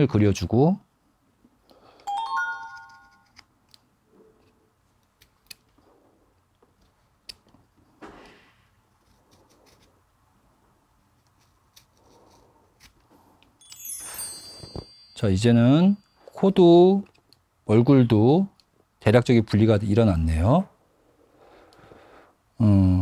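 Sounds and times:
bright chime: 2.0 - 3.3, 13.6 - 16.6.

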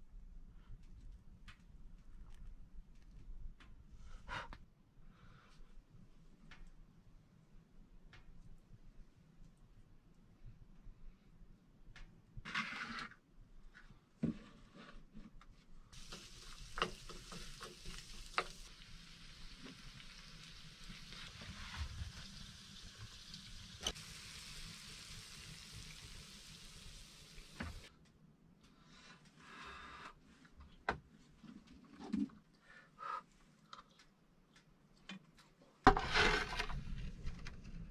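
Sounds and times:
food sizzling in a frying pan: 16.0 - 27.9.

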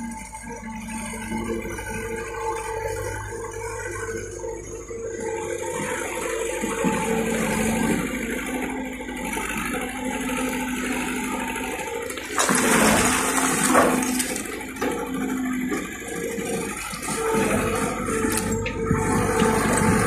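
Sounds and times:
diesel engine running under load: 0.0 - 20.0
rocks and dirt pouring from bucket: 12.1 - 14.6.

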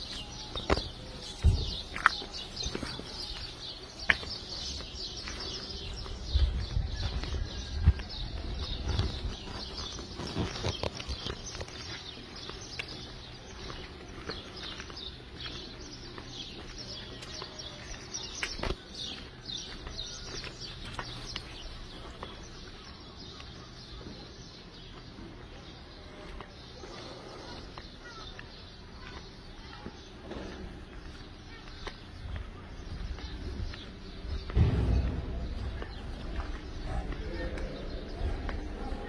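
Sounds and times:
small birds chirping: 0.0 - 39.0
low rumbling thumps: 32.2 - 39.0.

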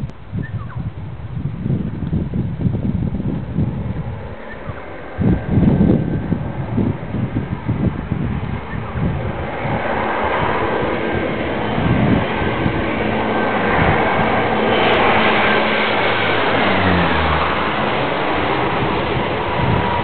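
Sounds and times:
low-flying aircraft passing: 0.0 - 20.0.

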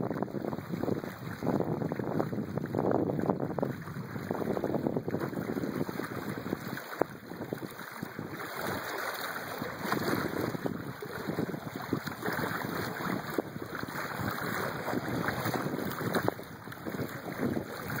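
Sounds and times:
water splashing along boat hull: 0.0 - 18.0
wind buffeting microphone: 0.0 - 18.0.

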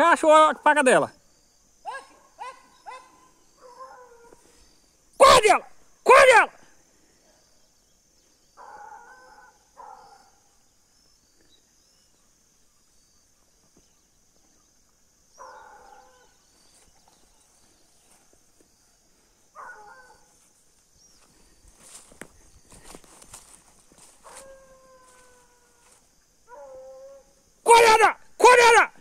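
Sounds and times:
distant hound baying: 1.8 - 4.5, 8.6 - 10.5, 15.4 - 16.4, 19.5 - 20.4, 24.0 - 27.4.

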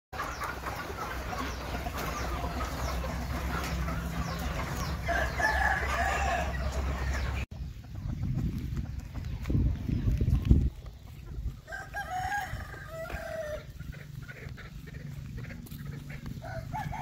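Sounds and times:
chickens clucking and chirping: 0.2 - 17.0
rooster crowing: 5.0 - 6.8, 11.7 - 13.6, 16.4 - 17.0.

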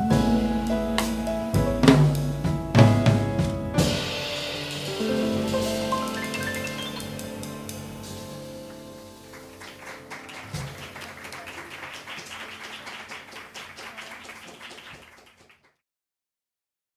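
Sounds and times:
live band final chord: 0.0 - 11.0
audience applauding: 5.9 - 7.3, 9.1 - 15.8.

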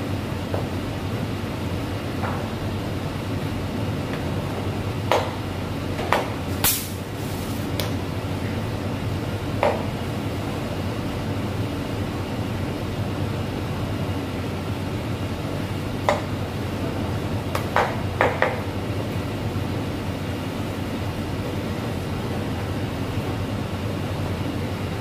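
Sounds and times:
kitchen rushing background noise: 5.8 - 8.6.

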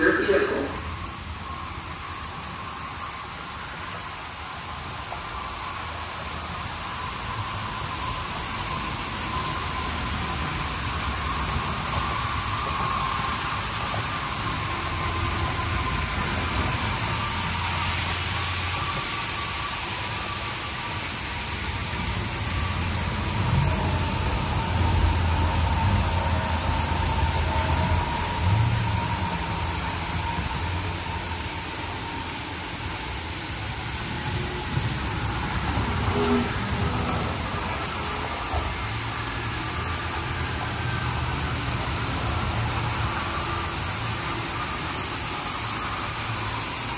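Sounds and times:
faint steady whine: 0.0 - 46.9
water spraying onto car: 4.8 - 46.9
low machine rumble: 20.3 - 44.7.

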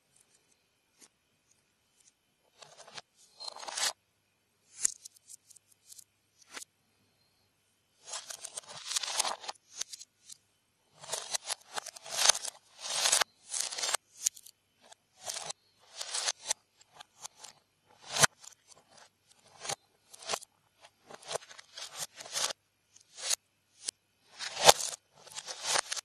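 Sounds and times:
plastic pieces clattering on wood: 8.0 - 10.0, 11.0 - 14.5, 15.2 - 16.4, 24.4 - 26.0.

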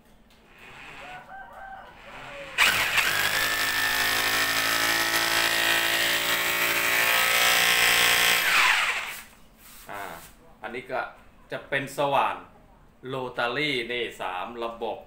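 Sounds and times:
rotary hammer drill boring into wall: 2.0 - 9.3.

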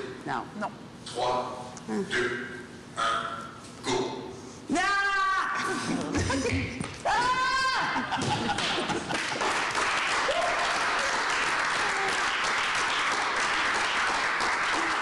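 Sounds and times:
high shout: 4.7 - 5.8, 7.0 - 8.1, 10.2 - 12.4
group applauding and cheering: 6.9 - 15.0.

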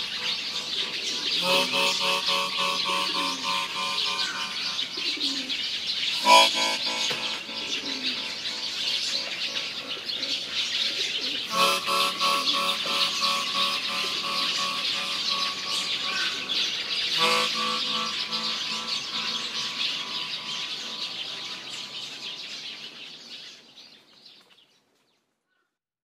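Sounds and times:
soft held music chords: 0.0 - 22.4
birds chirping: 0.0 - 24.4.

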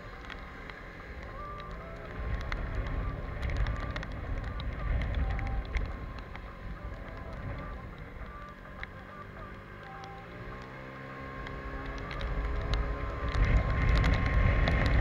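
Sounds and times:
wind rumbling on microphone: 0.0 - 10.8, 11.4 - 15.0
raindrops ticking on camera: 0.0 - 15.0
scooter engine running: 0.0 - 15.0
tyres on wet road: 0.0 - 15.0.

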